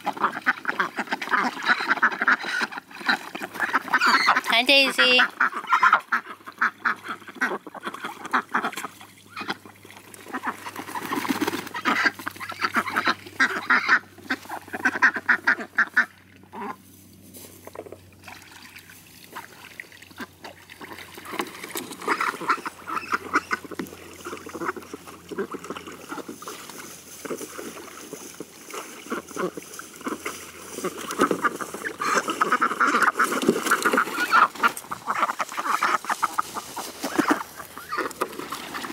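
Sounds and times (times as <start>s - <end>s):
ducks quacking: 0.0s - 16.8s, 19.3s - 38.9s.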